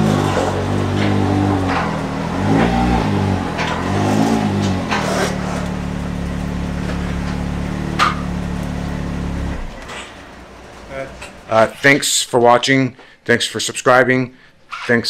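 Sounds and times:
engine revving and idling: 0.0 - 11.8.

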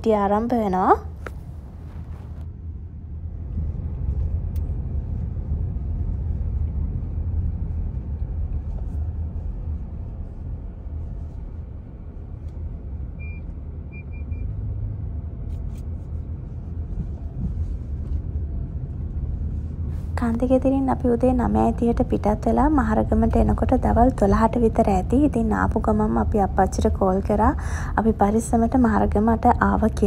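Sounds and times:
road and engine rumble: 0.0 - 30.0.

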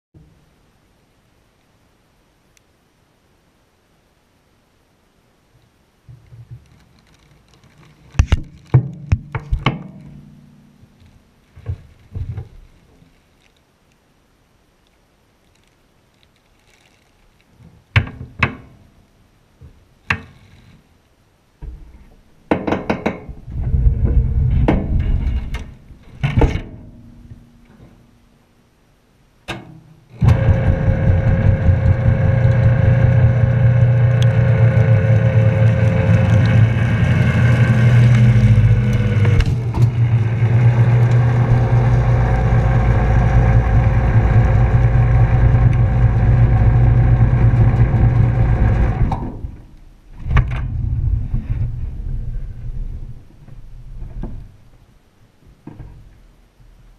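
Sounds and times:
knocks and clunks: 21.6 - 28.0
trash compactor motor humming: 30.2 - 49.6.

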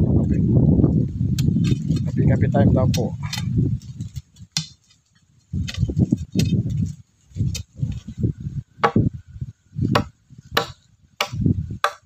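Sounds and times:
hand tool chopping wood: 4.6 - 4.8, 9.9 - 12.0.

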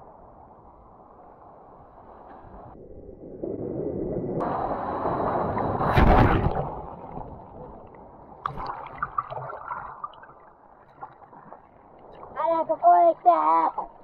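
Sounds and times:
underwater churning and gurgling: 3.3 - 14.0.

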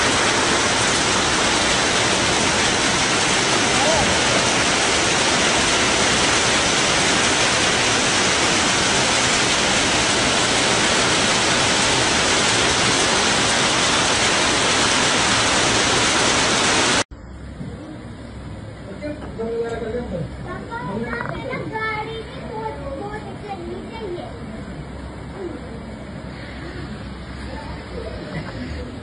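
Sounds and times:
torrential rain pouring: 0.0 - 17.1.

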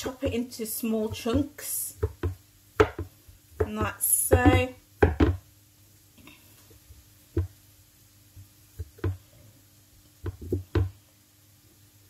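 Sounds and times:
knife chopping on wooden board: 2.0 - 5.4.

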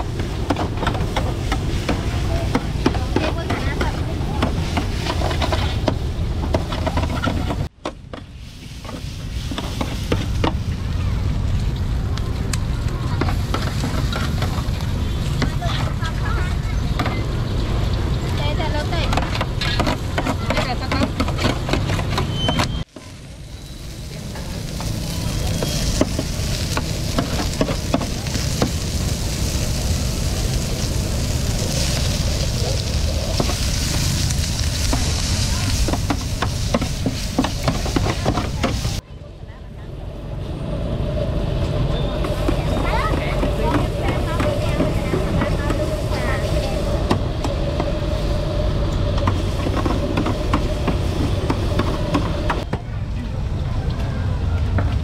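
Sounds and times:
noodles sizzling on griddle: 0.0 - 7.0, 8.3 - 12.0, 12.7 - 39.0, 42.0 - 52.6
steady low rumble: 23.0 - 55.0.

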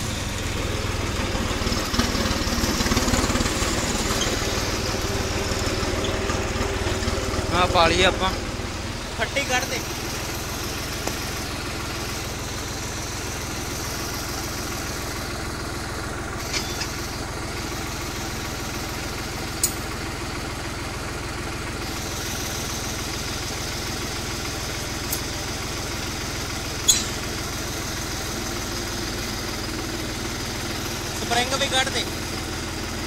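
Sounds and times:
tractor diesel engine idling: 0.0 - 33.0
sharp metal clinks: 26.9 - 27.3.

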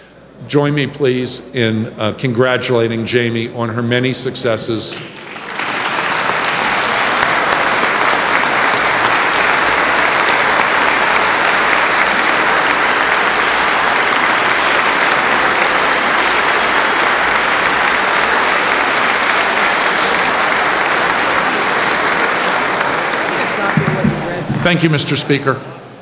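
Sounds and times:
crowd applauding: 4.9 - 25.4.

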